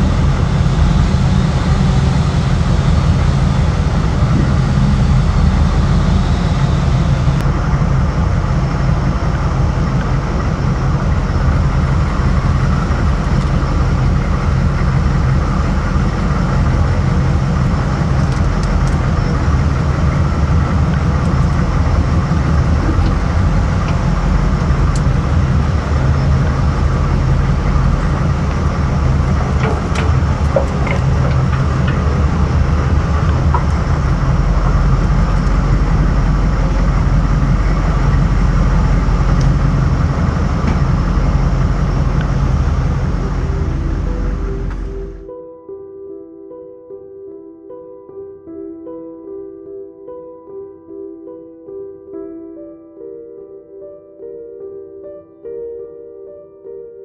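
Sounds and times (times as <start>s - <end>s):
diesel engine droning: 0.0s - 45.4s.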